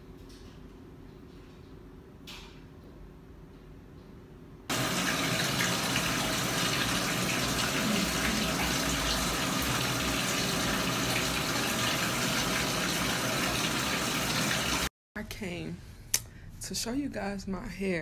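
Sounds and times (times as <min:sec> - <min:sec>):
water running: 0:04.7 - 0:14.9.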